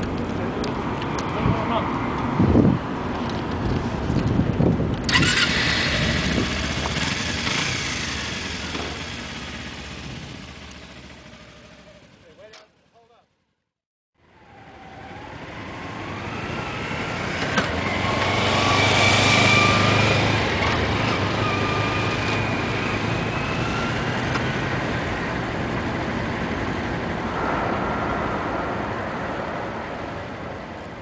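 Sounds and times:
motorcycle engine running: 0:05.8 - 0:12.3.

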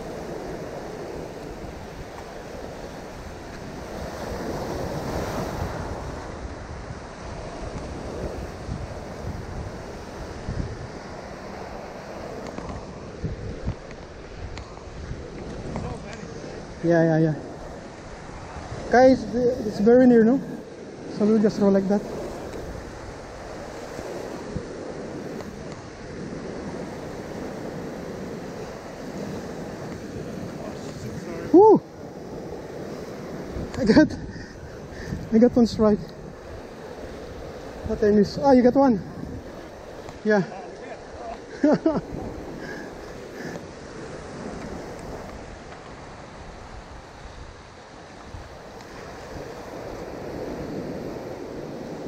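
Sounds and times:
surf washing over rocks: 0:00.0 - 0:52.0
wind buffeting microphone: 0:00.0 - 0:52.0.

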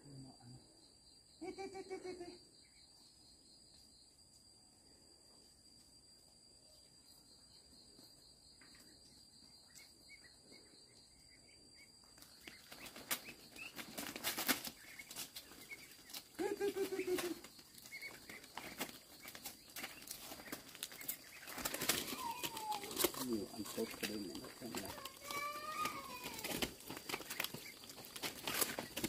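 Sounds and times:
high insect drone: 0:00.0 - 0:29.0
bird chirps: 0:08.7 - 0:26.1.

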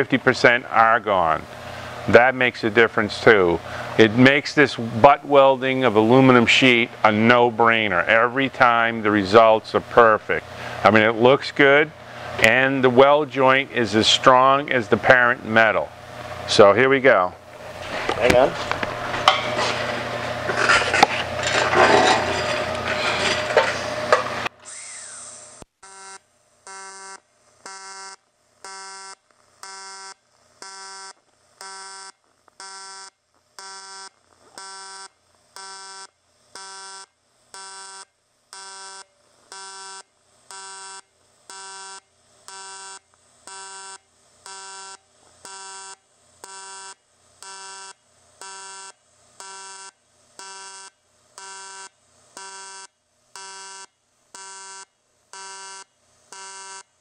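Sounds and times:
welding arc buzzing: 0:17.4 - 0:57.0.

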